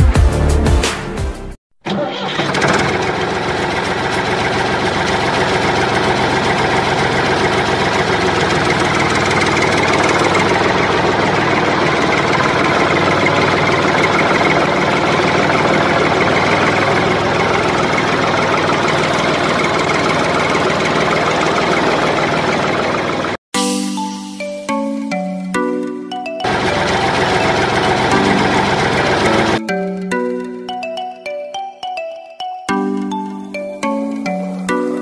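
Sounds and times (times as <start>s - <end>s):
toy tractor motor drone: 1.9s - 23.3s, 26.5s - 29.6s.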